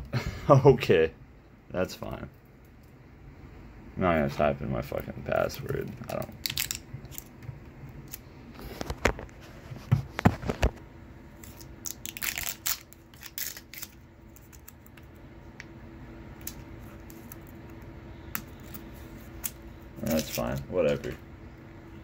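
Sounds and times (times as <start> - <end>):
crackling rustle: 11.4 - 15.0, 18.6 - 20.7.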